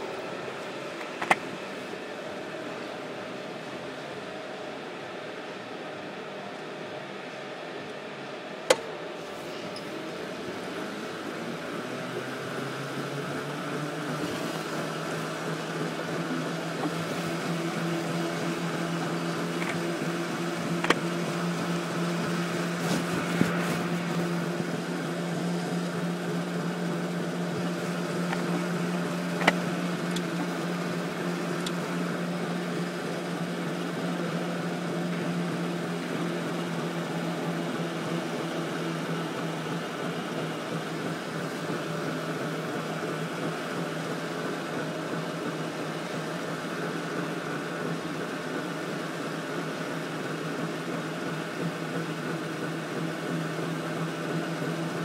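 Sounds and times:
electric go-kart hum: 0:09.8 - 0:49.0.

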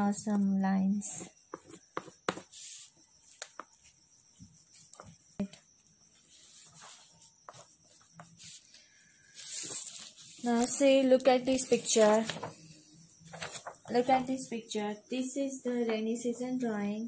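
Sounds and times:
crayon stroking on paper: 0:06.3 - 0:08.7.

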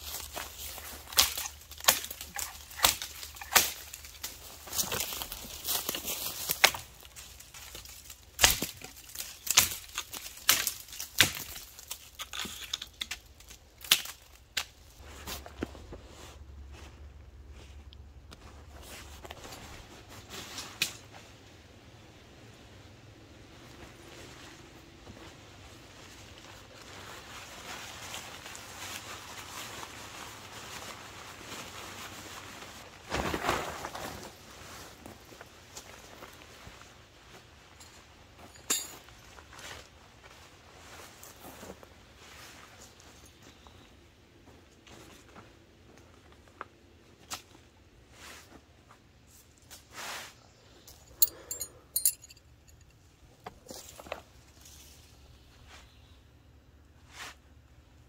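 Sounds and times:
branches rustling: 0:00.0 - 0:21.5, 0:23.4 - 0:37.6
dead wood snapping: 0:01.2 - 0:04.0, 0:08.4 - 0:14.7
tent fabric rustling: 0:23.5 - 0:37.6.

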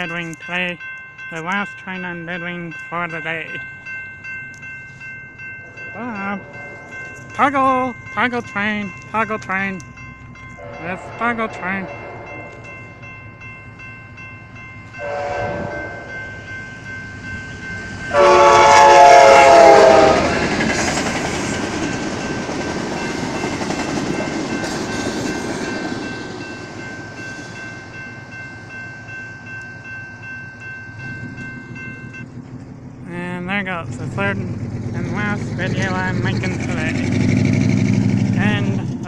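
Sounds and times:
crossing warning bell ringing: 0:00.0 - 0:39.0
train cars rushing and clattering: 0:00.0 - 0:39.0
train horn blasts: 0:10.6 - 0:12.6, 0:15.0 - 0:16.1, 0:18.1 - 0:20.4.

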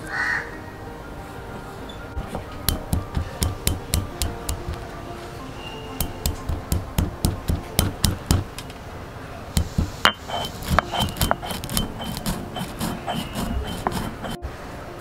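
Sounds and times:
stone roller knocking on stone: 0:02.2 - 0:04.8, 0:06.0 - 0:08.6, 0:09.6 - 0:14.4
grinding scrapes: 0:09.6 - 0:14.4.

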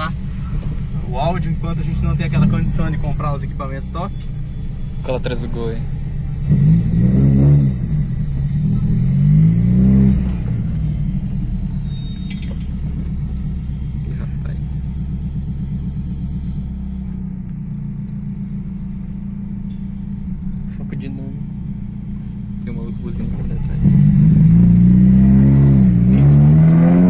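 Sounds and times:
car engine revving: 0:00.0 - 0:27.0.

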